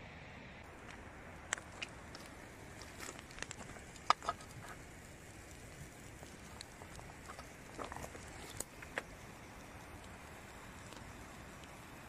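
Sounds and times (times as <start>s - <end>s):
campfire embers crackling: 0.6s - 12.0s.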